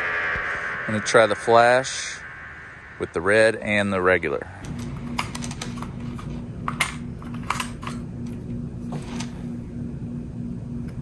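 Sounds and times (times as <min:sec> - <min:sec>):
faint pulsing tone: 0:00.0 - 0:05.2
steady low hum: 0:00.0 - 0:11.0.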